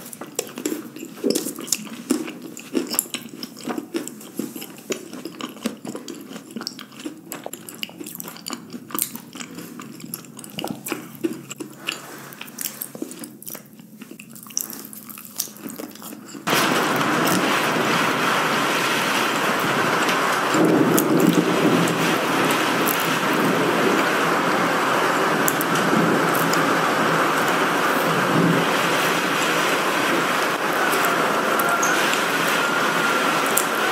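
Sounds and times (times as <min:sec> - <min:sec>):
heavy rain: 0:16.5 - 0:33.9.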